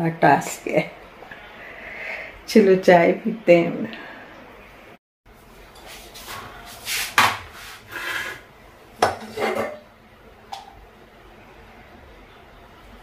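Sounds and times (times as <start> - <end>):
kitchen utensils clinking: 9.0 - 9.9.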